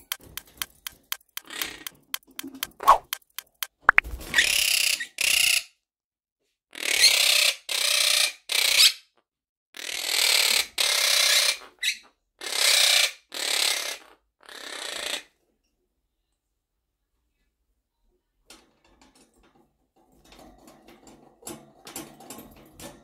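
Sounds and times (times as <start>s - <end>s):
parrot squawking harshly: 6.7s - 9.0s, 9.8s - 15.3s.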